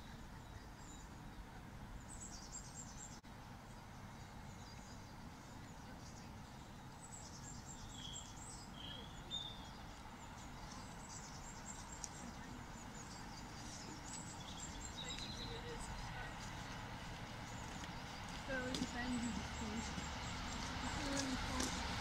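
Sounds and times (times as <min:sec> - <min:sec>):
songbirds chirping and trilling: 0:00.0 - 0:22.0.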